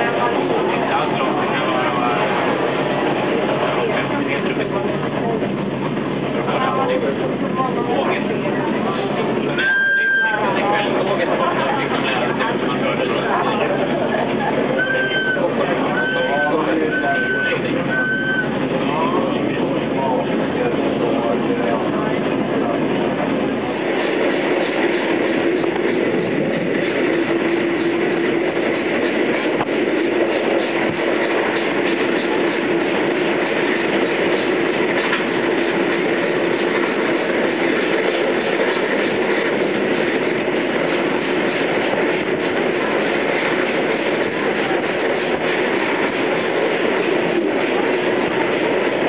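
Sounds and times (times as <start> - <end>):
train wheels rolling on rails: 0.0 - 49.0.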